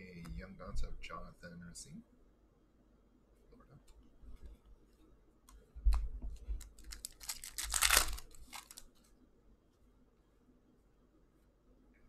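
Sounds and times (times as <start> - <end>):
foil wrapper crinkling and tearing: 6.6 - 9.0.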